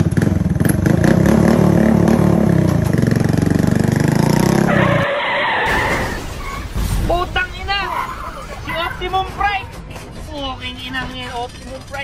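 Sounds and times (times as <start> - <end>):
motorbike engine running: 0.0 - 4.9, 10.7 - 12.0.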